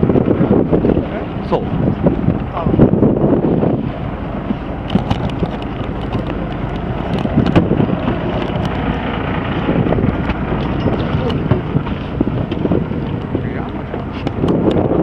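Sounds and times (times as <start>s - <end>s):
boat engine rumbling: 0.0s - 15.0s
wind buffeting microphone: 0.0s - 15.0s
sharp clicks and knocks: 4.8s - 9.1s, 10.0s - 14.9s.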